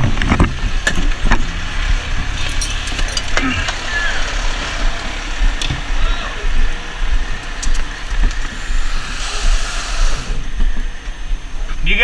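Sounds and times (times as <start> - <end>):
fire engine rumbling: 0.0 - 12.0
gear rustling and clinking: 2.2 - 4.4.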